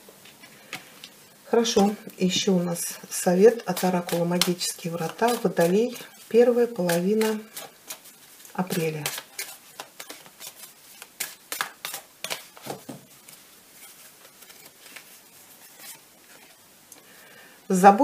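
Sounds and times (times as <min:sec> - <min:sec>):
cards being shuffled: 0:03.5 - 0:16.6.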